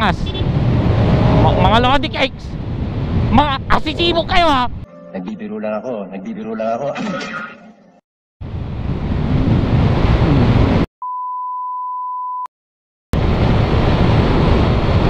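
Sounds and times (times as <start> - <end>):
wind rushing over microphone: 0.0 - 4.8, 8.4 - 10.9, 13.2 - 15.0
high censor bleep: 11.0 - 12.5.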